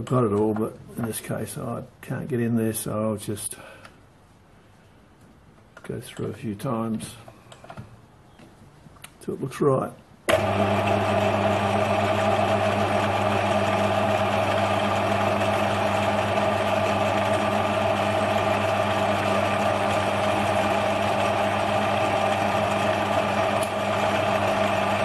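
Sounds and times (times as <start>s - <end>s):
metal lathe running: 10.3s - 25.0s.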